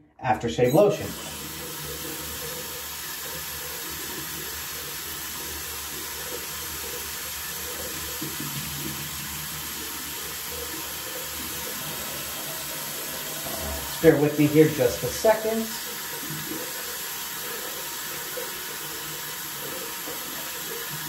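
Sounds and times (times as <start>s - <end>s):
tap water pouring into basin: 0.6s - 21.0s.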